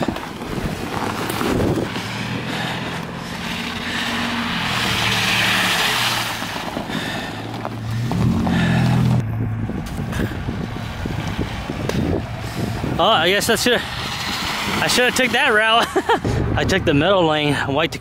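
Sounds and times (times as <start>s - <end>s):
engines running at crawling speed: 0.0s - 18.0s
tyres hissing through mud: 1.0s - 9.2s.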